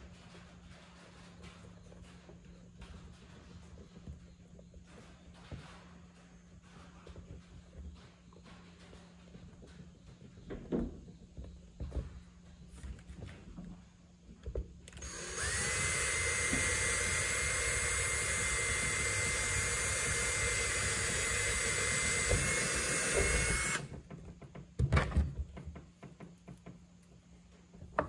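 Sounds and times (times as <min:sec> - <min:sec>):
cordless drill whining: 0:14.9 - 0:24.0.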